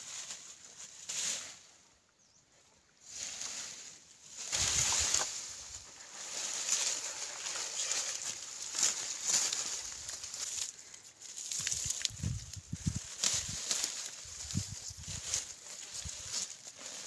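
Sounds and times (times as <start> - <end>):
branches rustling and crackling: 0.0 - 2.0, 2.9 - 17.0
footsteps on grass: 3.4 - 17.0.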